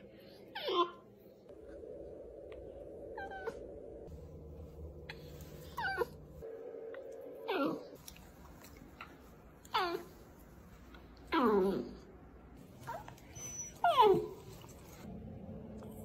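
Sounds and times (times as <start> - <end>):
puppy whining: 0.2 - 1.3, 3.0 - 4.1, 5.1 - 6.5, 7.4 - 8.2, 9.0 - 10.2, 11.3 - 12.0, 12.7 - 15.1.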